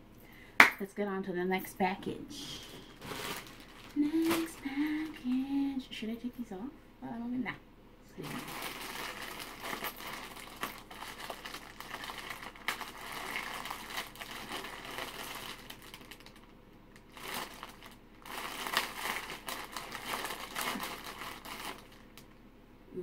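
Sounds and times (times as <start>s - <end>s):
plastic mailer bag crinkling: 2.8s - 5.4s, 8.2s - 22.3s.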